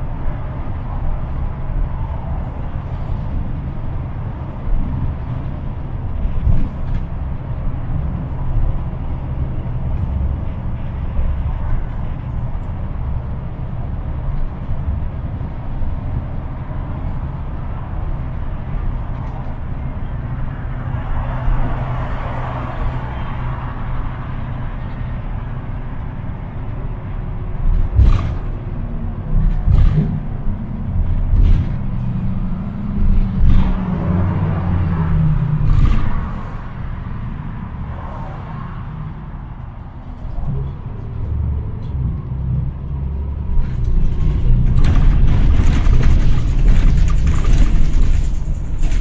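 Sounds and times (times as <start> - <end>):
bus engine and road rumble: 0.0 - 49.0
sharp knocks of bus jolting: 27.6 - 34.3, 43.6 - 49.0.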